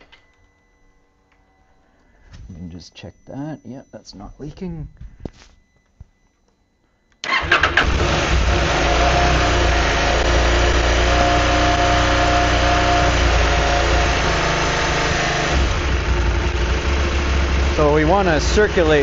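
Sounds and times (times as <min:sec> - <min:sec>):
motorcycle engine starting and running: 0:07.2 - 0:19.0.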